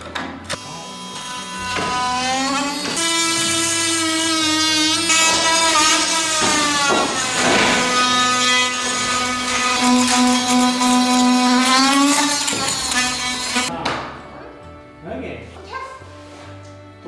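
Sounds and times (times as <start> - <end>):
drill bit grinding into wall: 1.5 - 13.7.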